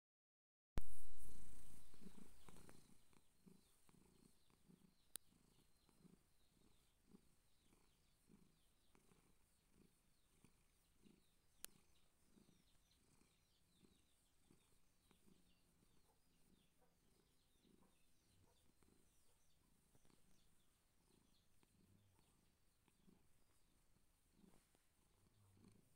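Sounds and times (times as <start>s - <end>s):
faint high chirps: 0.8s - 8.9s
cat purring: 0.8s - 25.9s.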